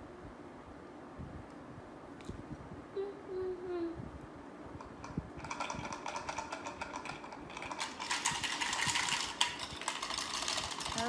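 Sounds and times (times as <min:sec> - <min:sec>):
plastic toy clicking and rattling: 0:04.9 - 0:11.0.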